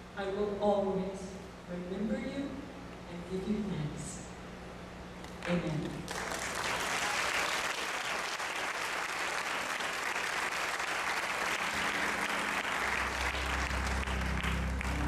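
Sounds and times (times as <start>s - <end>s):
congregation applauding: 6.1s - 15.0s
low sustained notes: 11.2s - 15.0s.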